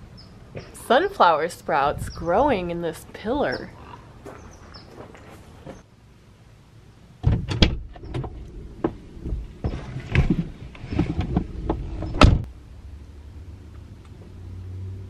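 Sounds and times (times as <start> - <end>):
rustling: 3.8 - 5.8
bumps against seat and door: 7.2 - 12.5.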